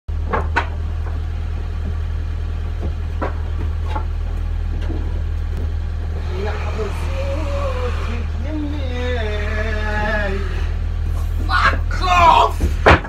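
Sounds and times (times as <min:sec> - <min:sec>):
low rumble: 0:00.1 - 0:12.0.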